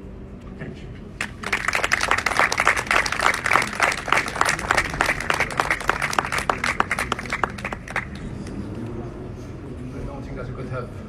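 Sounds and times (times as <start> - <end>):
audience applauding: 1.2 - 8.6.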